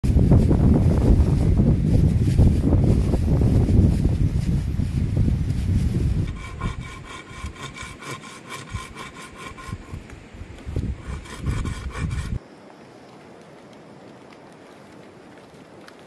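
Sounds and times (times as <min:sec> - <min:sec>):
wind buffeting microphone: 0:00.0 - 0:12.4
saw cutting wooden pole: 0:06.2 - 0:10.0, 0:10.8 - 0:12.4.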